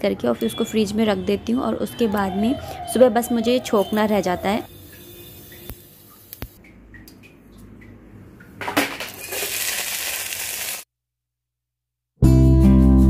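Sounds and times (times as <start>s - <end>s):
crackling hissing kitchen noise: 3.6s - 6.6s, 8.5s - 10.9s.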